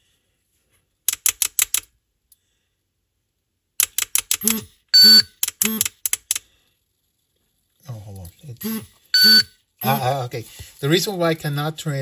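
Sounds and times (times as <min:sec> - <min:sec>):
electronic alarm beeps and chirps: 0:04.4 - 0:05.8, 0:08.6 - 0:10.2.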